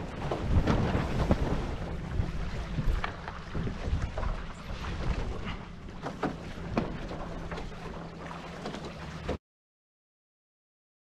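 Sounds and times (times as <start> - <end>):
wind rumble on microphone: 0.0 - 8.1
water slapping against hulls: 0.0 - 9.4.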